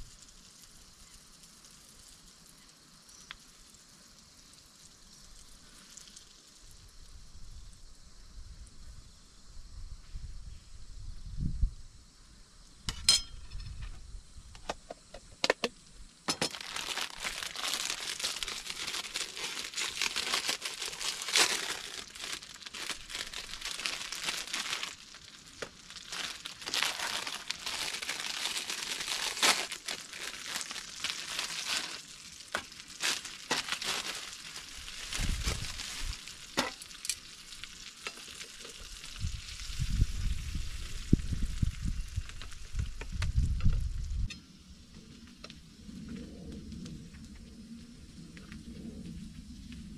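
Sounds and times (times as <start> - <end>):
food sizzling in a pan: 0.0 - 7.8, 16.4 - 43.0.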